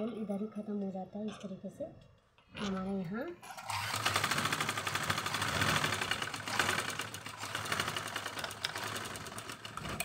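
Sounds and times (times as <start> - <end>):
sewing machine stitching rapidly: 3.5 - 10.0.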